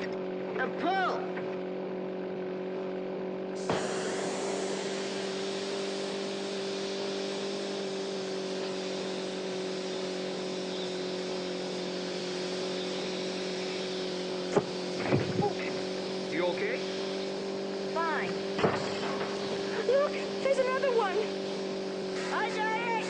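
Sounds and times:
car engine droning: 0:00.0 - 0:23.0
loud steady hiss: 0:03.6 - 0:23.0.

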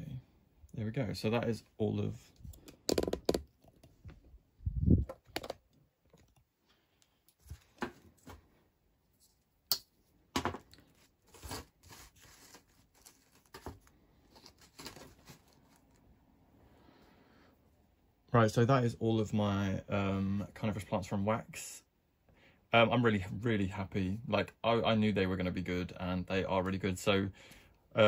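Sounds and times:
plastic plant pots set down: 0:10.3 - 0:10.8
plastic sheet crinkling: 0:10.9 - 0:16.0.

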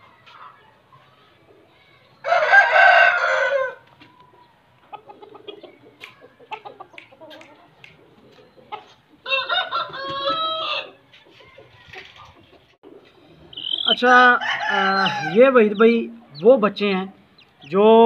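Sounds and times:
rooster crowing: 0:02.2 - 0:03.8, 0:09.2 - 0:11.0, 0:14.2 - 0:15.4
chicken clucking: 0:03.9 - 0:16.5.

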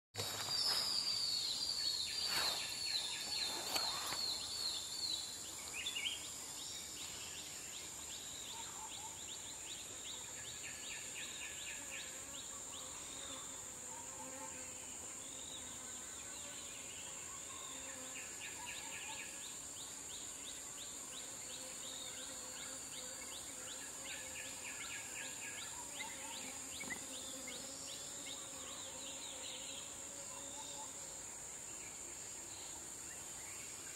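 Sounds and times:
high insect drone: 0:00.2 - 0:33.9.

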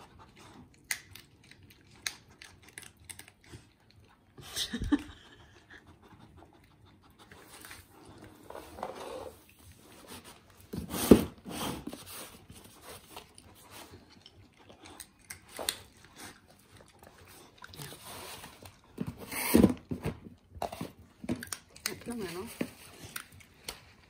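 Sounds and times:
dogs crunching dry kibble: 0:00.0 - 0:04.4, 0:07.2 - 0:24.0.

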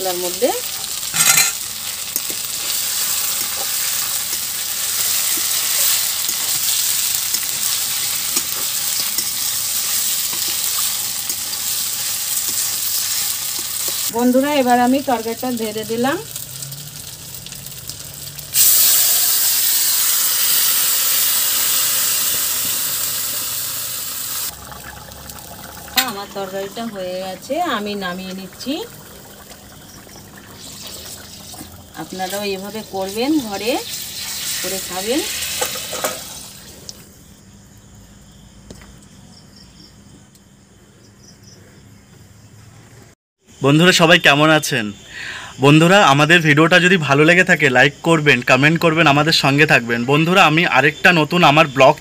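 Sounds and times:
liquid sizzling in hot oil: 0:00.0 - 0:37.3
crickets chirping: 0:00.0 - 0:52.0.

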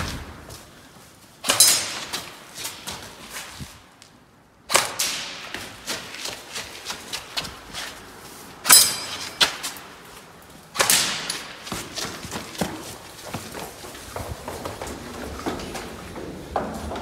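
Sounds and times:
footsteps: 0:00.0 - 0:04.2, 0:05.0 - 0:17.0
airsoft rifle shots: 0:04.7 - 0:05.5, 0:10.8 - 0:11.6
bb clinking on steel target: 0:08.6 - 0:09.6.

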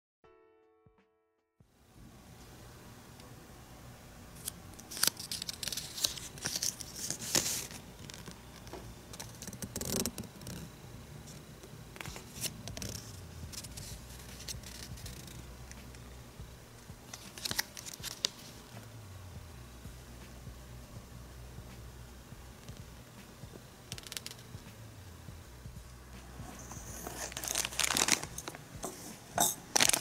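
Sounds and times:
plastic packaging crinkling: 0:04.4 - 0:08.4, 0:17.1 - 0:18.6, 0:26.6 - 0:30.0
paper tearing: 0:04.8 - 0:08.3, 0:26.6 - 0:28.6, 0:29.7 - 0:30.0.

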